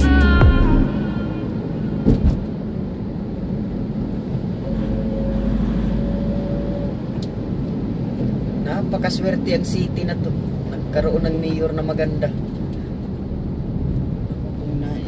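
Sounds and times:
music clip: 0.0s - 1.5s
road and engine noise: 0.0s - 15.0s.

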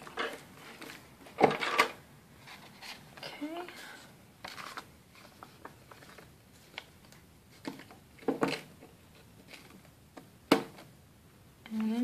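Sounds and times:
paper pages rustling: 4.4s - 8.0s.

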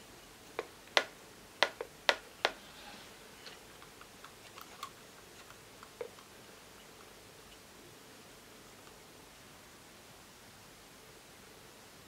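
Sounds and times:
wooden marionette clacking: 0.6s - 2.6s.

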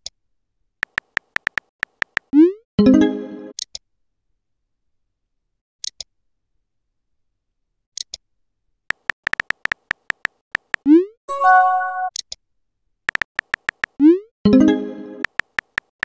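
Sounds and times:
phone keyboard taps: 0.8s - 2.3s, 8.9s - 10.8s, 13.1s - 14.0s, 15.2s - 16.0s
chime tone: 11.3s - 12.1s.

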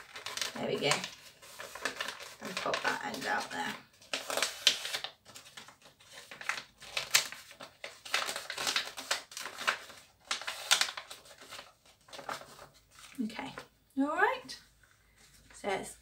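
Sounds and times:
paper bag crinkling: 0.0s - 13.6s.

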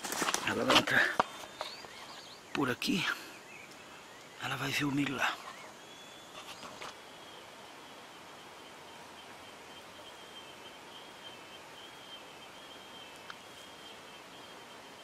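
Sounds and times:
soft rustles: 0.0s - 2.3s
high-pitched insect drone: 3.9s - 15.0s.

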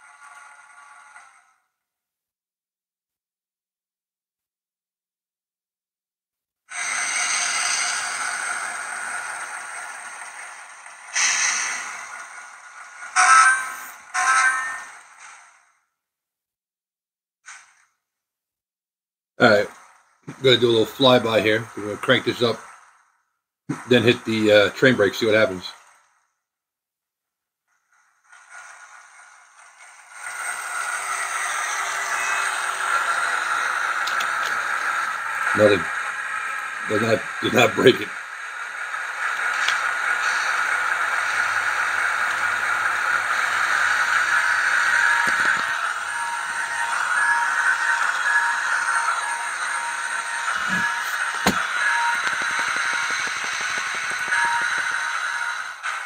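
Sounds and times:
air hiss: 11.1s - 12.4s
whistling tones: 44.9s - 55.5s.

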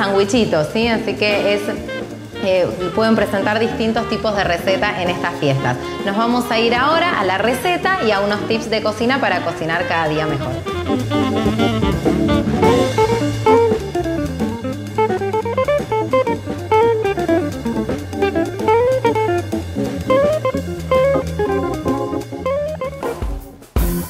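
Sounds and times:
bass line: 0.0s - 24.0s
drum kit: 0.0s - 24.0s
plucked guitar melody: 10.0s - 23.4s.

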